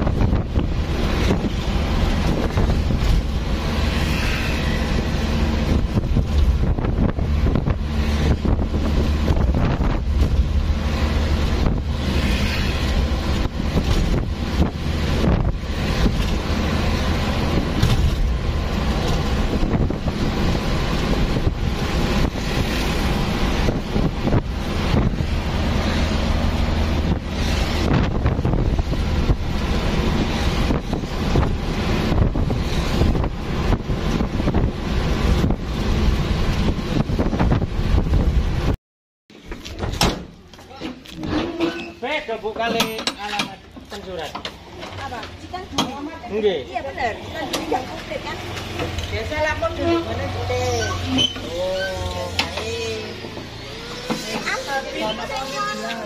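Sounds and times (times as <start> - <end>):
wind buffeting microphone: 0.0 - 3.9, 4.8 - 12.2, 12.8 - 38.8
vehicle engine drone: 0.0 - 38.8, 47.0 - 56.0.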